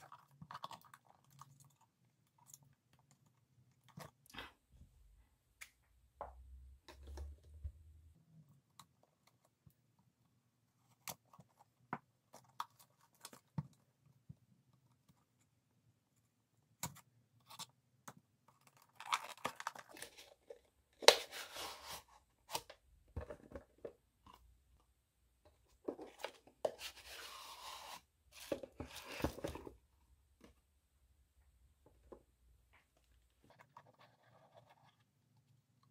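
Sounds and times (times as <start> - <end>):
cardboard boxes being handled: 25.8 - 29.8.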